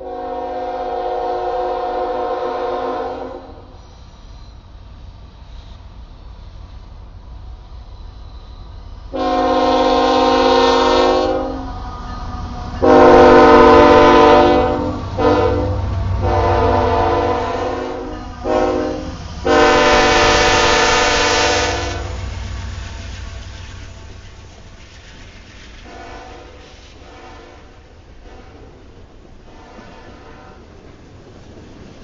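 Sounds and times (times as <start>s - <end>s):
locomotive air horn blasts: 0.0s - 3.7s, 9.1s - 11.8s, 12.8s - 22.3s, 25.9s - 28.6s, 29.5s - 30.6s
passing train rumble: 0.0s - 32.0s.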